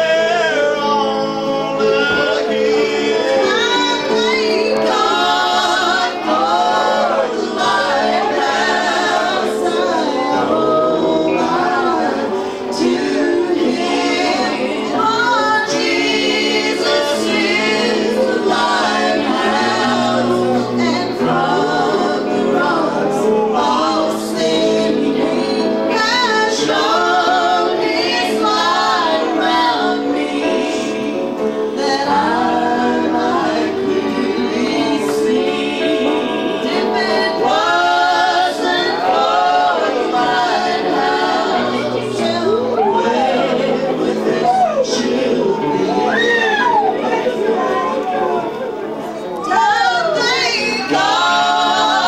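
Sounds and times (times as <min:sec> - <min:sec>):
acoustic guitar: 0:00.0 - 0:52.0
woman singing with vibrato: 0:03.1 - 0:06.2.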